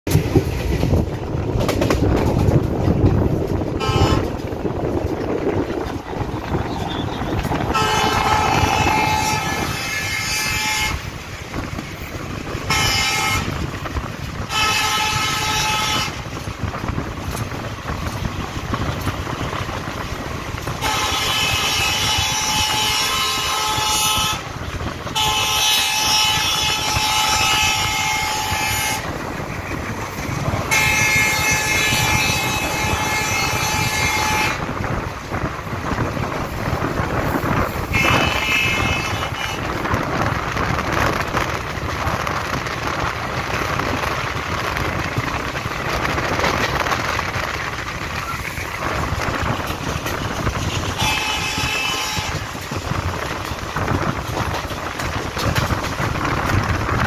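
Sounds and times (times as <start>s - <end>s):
moving train rumble and clatter: 0.0s - 57.0s
passing train: 0.0s - 57.0s
multi-tone train horn: 3.7s - 4.5s, 5.9s - 11.6s, 12.3s - 29.2s, 30.4s - 34.9s, 37.0s - 40.0s, 48.1s - 55.7s.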